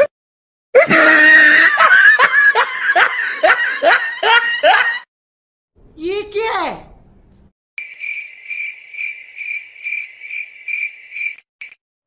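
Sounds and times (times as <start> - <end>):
loud rapid laughter: 0.8 - 5.1.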